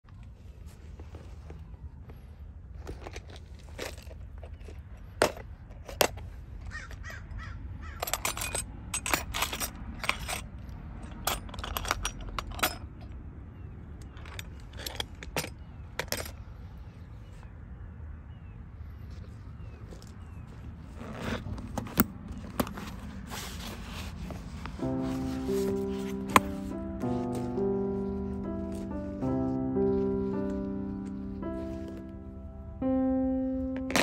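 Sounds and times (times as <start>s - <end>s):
metal parts being handled: 2.8s - 7.1s, 7.9s - 13.2s, 14.0s - 16.6s, 33.8s - 34.0s.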